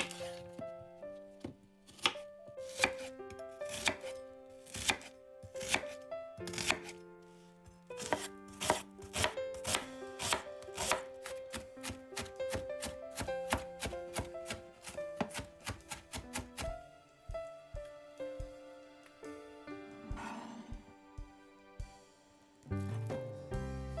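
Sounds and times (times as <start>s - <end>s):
knife chopping onion on board: 1.4s - 3.1s, 3.7s - 5.9s, 6.5s - 6.9s, 8.0s - 18.5s.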